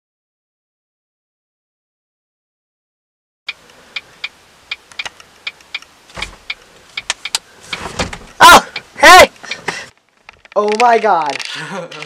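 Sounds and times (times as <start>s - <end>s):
short vocal cries: 8.4s - 9.4s.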